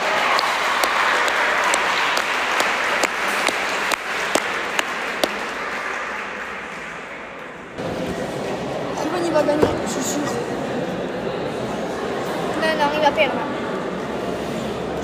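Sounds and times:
audience applauding: 0.0 - 7.3
sharp single claps: 0.3 - 6.0.

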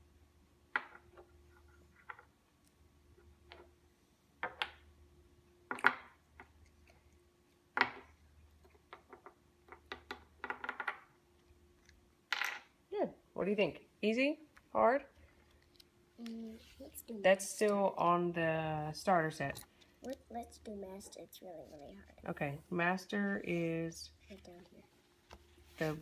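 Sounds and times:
wooden blocks clacking on table: 0.7 - 1.3, 4.4 - 4.8, 7.7 - 11.1, 12.3 - 12.7.

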